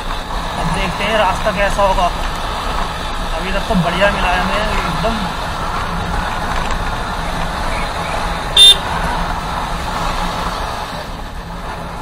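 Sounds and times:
motorcycle engine: 0.0s - 12.0s
horn beep: 8.6s - 8.8s.

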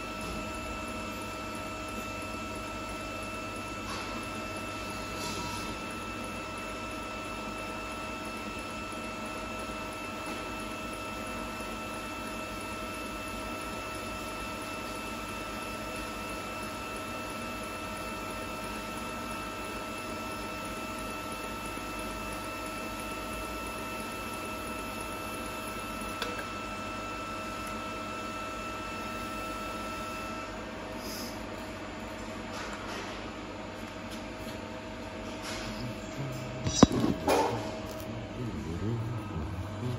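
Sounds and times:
welding arc humming and hissing: 0.0s - 32.4s, 33.4s - 39.9s
sharp click: 36.7s - 37.5s.

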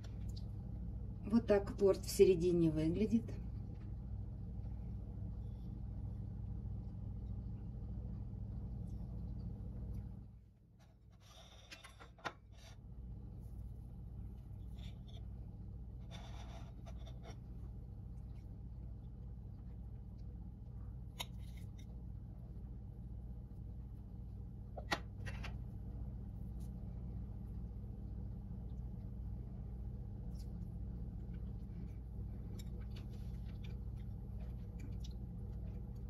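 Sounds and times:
low room hum: 0.0s - 36.0s
knife scraping a plate: 11.1s - 12.8s, 16.0s - 17.4s.

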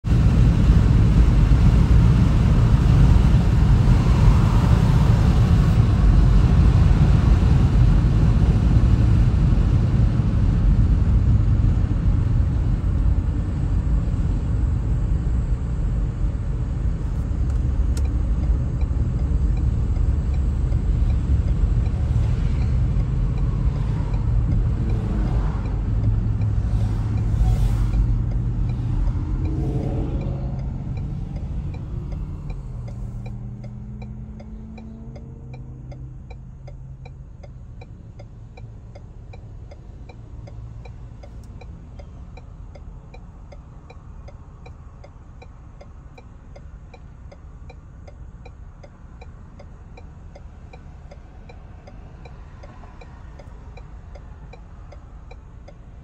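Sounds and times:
car tyres and engine rumble: 0.0s - 56.0s
faint rising tones: 17.2s - 35.2s.

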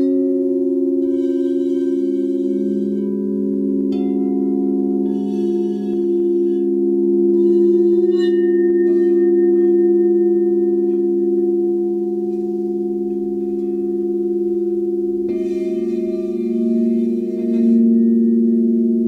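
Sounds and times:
singing bowls ringing: 0.0s - 19.0s.

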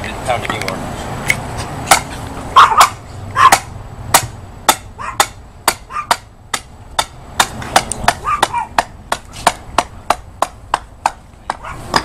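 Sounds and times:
hammer striking metal post: 1.9s - 2.1s, 3.5s - 12.0s.

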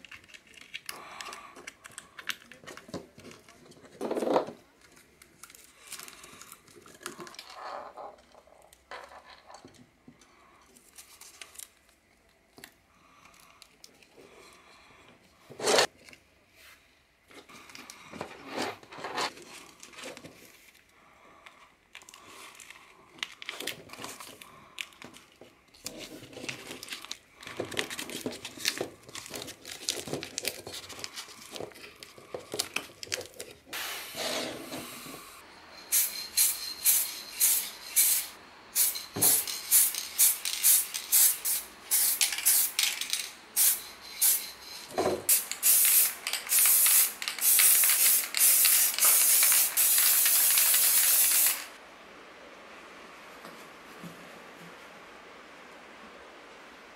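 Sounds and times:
spray paint can spraying: 35.9s - 43.0s, 43.6s - 44.5s, 45.3s - 51.8s.

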